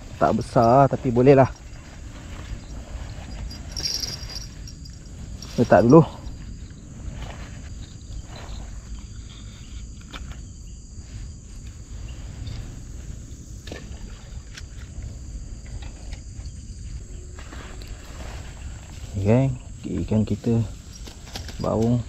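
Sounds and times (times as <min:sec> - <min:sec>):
low rumble: 0:00.0 - 0:09.2
insects chirring: 0:00.0 - 0:22.0.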